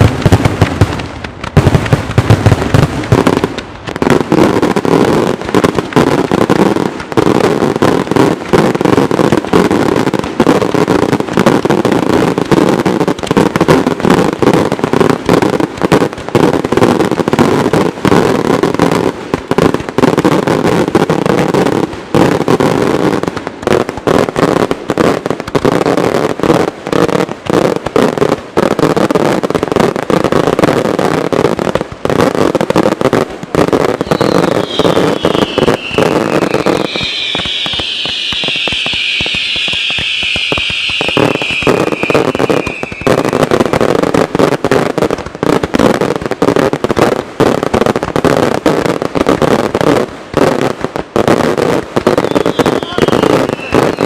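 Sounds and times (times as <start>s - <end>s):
fireworks shells bursting: 33.6s - 44.5s, 51.8s - 54.0s.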